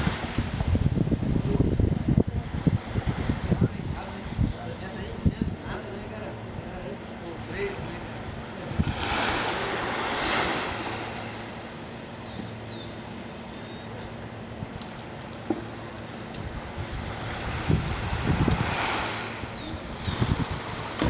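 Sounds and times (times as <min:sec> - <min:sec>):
wind bumps on microphone: 0:00.0 - 0:06.0, 0:07.7 - 0:10.8, 0:16.4 - 0:21.0
waves washing onto beach: 0:00.0 - 0:06.1, 0:07.0 - 0:12.0, 0:14.1 - 0:21.0.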